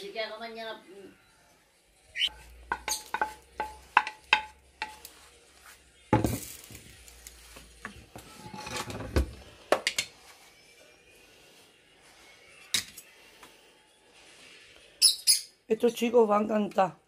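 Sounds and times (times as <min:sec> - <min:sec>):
utensil tapping frying pan: 0:02.3 - 0:05.2
kitchenware clatter: 0:02.7 - 0:05.1, 0:07.9 - 0:10.2.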